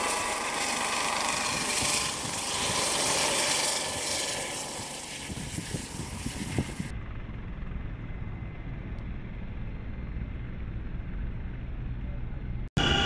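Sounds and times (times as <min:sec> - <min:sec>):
rotor wash blasting snow: 0:00.0 - 0:06.9
helicopters rotor rumble: 0:00.0 - 0:13.0.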